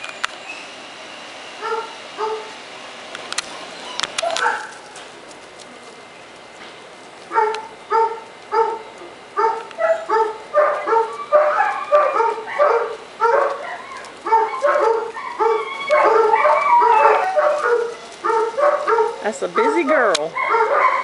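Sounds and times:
puppy yapping: 0:01.6 - 0:02.5, 0:03.4 - 0:05.0, 0:07.3 - 0:21.0.

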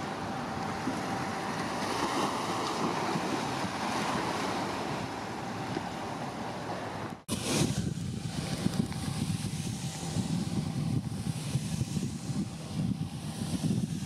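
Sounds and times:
waves washing: 0:00.0 - 0:14.0
wind buffeting microphone: 0:06.9 - 0:14.0.

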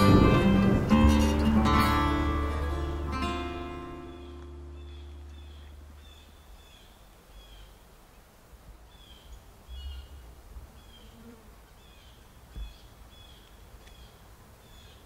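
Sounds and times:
low rumbles: 0:00.0 - 0:07.0.

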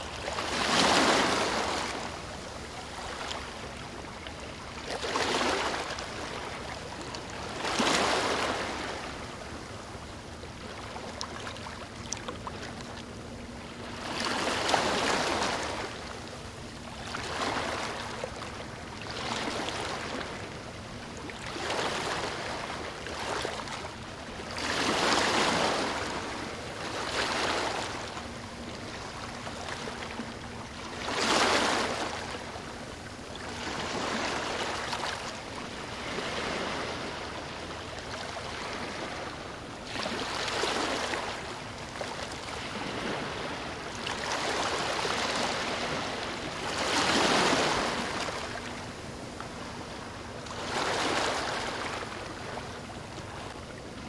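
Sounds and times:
waves splashing against jetty: 0:38.2 - 0:48.7, 0:50.4 - 0:52.6.

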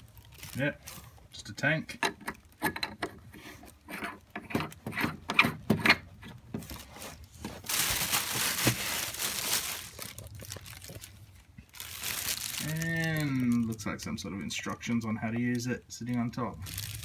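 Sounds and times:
packaging crinkling: 0:00.0 - 0:01.3, 0:06.6 - 0:14.9, 0:15.6 - 0:17.0.

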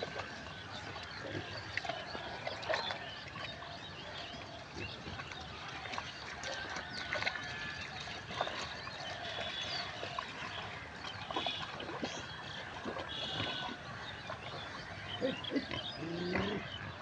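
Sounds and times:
small splashes: 0:00.0 - 0:15.4
water sloshing and dribbling: 0:00.0 - 0:17.0.

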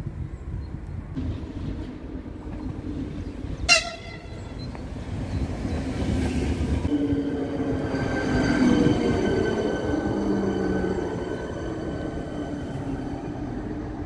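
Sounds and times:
train wheels rumbling on rail: 0:00.0 - 0:14.0
train horn toot: 0:03.7 - 0:04.6.

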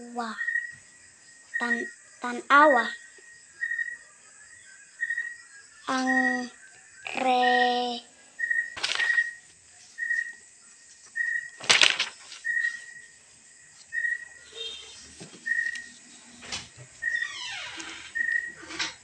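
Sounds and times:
page turning: 0:08.8 - 0:13.0, 0:14.9 - 0:16.7
paper rustling: 0:08.8 - 0:13.1, 0:14.8 - 0:16.7.

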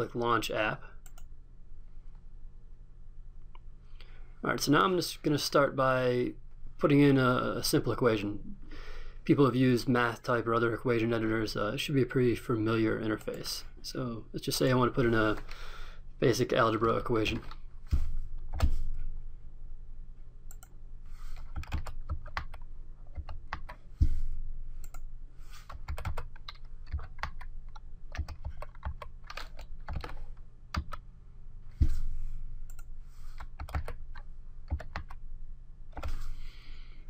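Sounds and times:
low steady hum: 0:00.0 - 0:37.0
keyboard typing: 0:21.3 - 0:23.8, 0:24.8 - 0:31.0, 0:32.7 - 0:35.2.

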